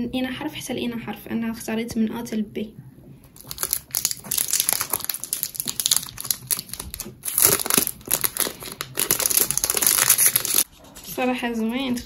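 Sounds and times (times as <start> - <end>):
plastic wrapper crinkling: 3.4 - 10.7.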